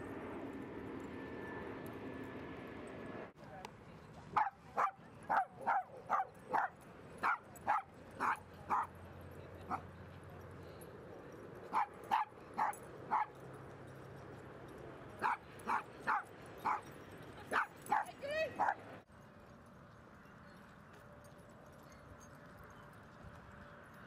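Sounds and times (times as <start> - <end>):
dog barking: 4.4 - 8.9, 11.7 - 13.4, 15.2 - 16.8, 17.5 - 18.8.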